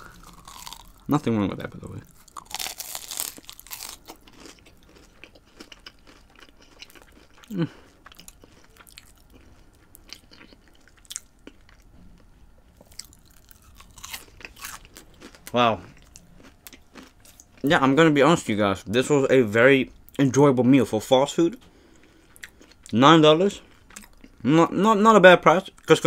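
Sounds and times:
chewing: 0.0s - 1.1s, 2.1s - 11.9s, 12.8s - 17.6s
crunchy bite: 0.0s - 1.1s, 2.2s - 9.2s, 12.8s - 15.4s.

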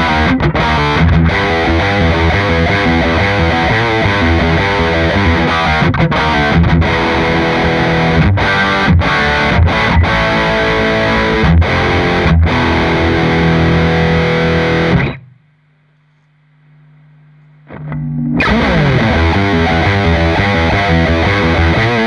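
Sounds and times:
distorted electric guitar riffs: 0.0s - 16.0s, 17.4s - 22.0s
faint low hum: 15.0s - 19.2s.

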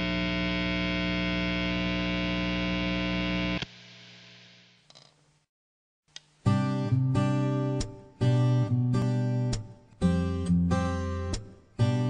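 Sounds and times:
amplifier mains hum: 0.0s - 5.5s.

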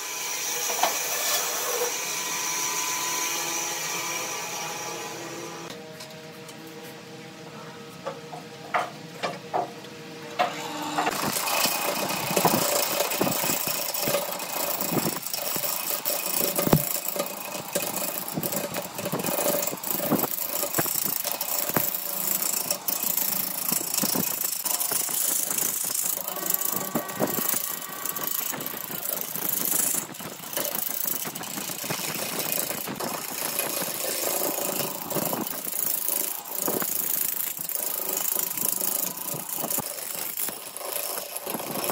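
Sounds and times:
lathe motor hum: 10.4s - 41.9s
gouge scraping wood on lathe: 11.1s - 41.9s.

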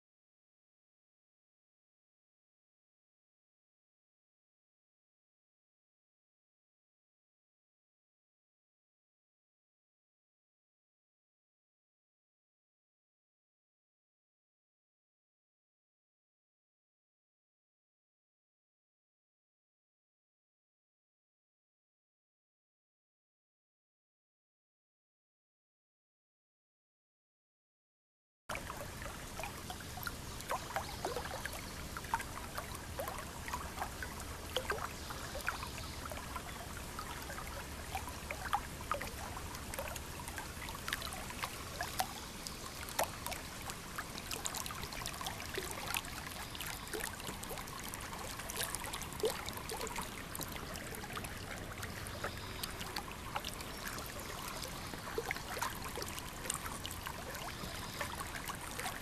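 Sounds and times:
river water trickling and splashing: 28.5s - 59.0s.

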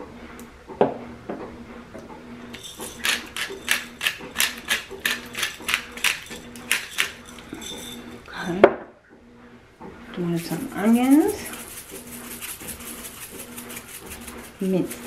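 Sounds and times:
spice grinder rasping: 2.5s - 8.3s, 10.2s - 15.0s.

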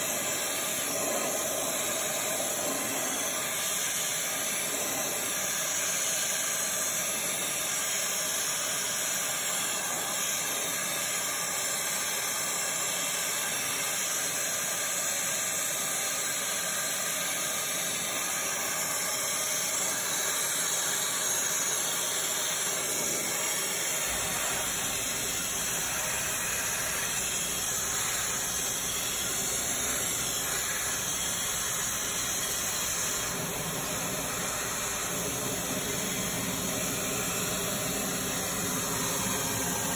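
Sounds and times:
hissing water jet spraying: 0.0s - 6.2s.

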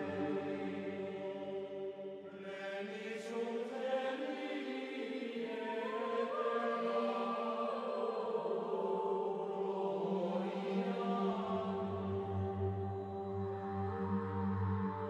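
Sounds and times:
slow choral chant: 0.0s - 15.0s.

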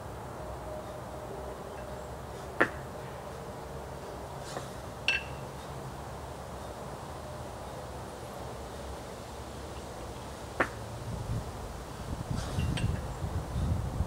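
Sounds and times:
kettlebells clinking: 5.0s - 5.6s
wind rumble on microphone: 11.0s - 14.0s.

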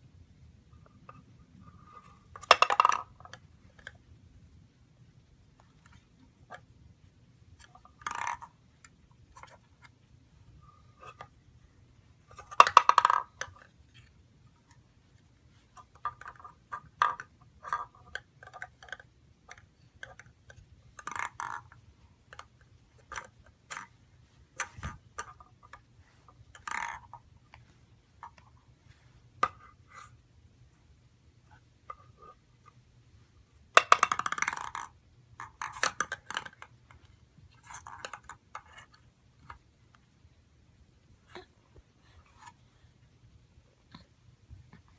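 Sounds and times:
ball rattling through wooden box: 2.3s - 3.8s, 7.6s - 8.6s, 12.3s - 14.1s, 15.8s - 27.3s, 33.8s - 39.6s.

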